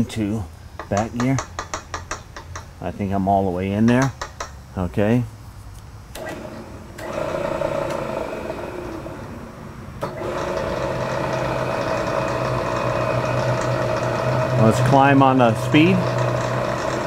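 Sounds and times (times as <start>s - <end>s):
milling machine motor humming: 6.2s - 17.0s.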